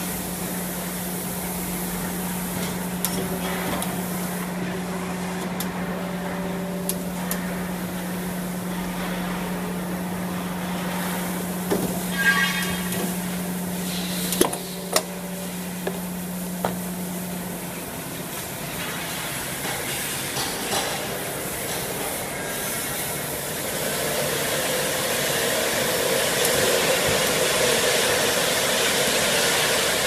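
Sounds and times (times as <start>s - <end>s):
machine whine: 11.7s - 15.7s
molding machine humming: 21.0s - 30.0s.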